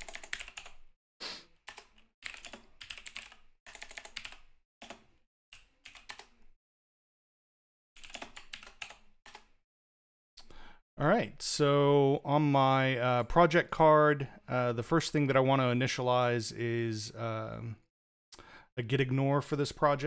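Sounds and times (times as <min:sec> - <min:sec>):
typing on computer keyboard: 0:00.0 - 0:00.9, 0:01.7 - 0:06.4, 0:08.0 - 0:09.5.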